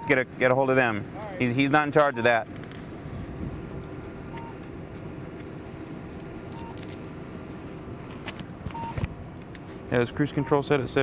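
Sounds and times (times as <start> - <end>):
idling car hum: 0.0 - 11.0
paper and pen sounds: 3.5 - 7.1.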